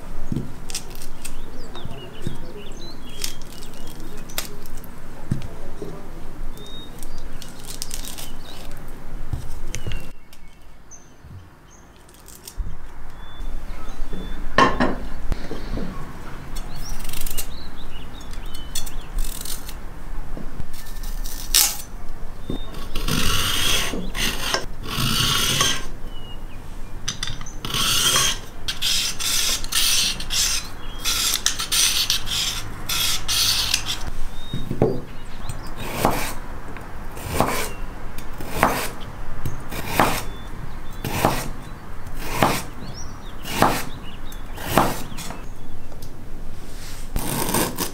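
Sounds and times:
knife scraping a carrot: 22.6 - 25.9, 27.6 - 34.1, 46.9 - 47.9.

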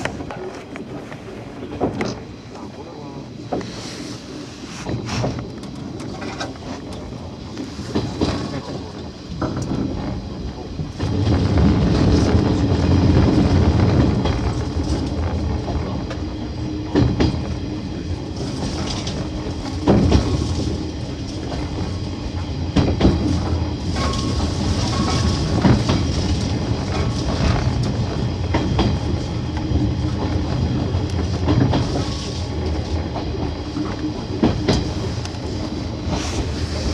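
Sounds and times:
electric train rumbling: 0.0 - 36.9
grass brushing against train: 3.6 - 5.6, 34.6 - 36.9
train wheel knocks: 7.9 - 17.6, 18.6 - 36.2.

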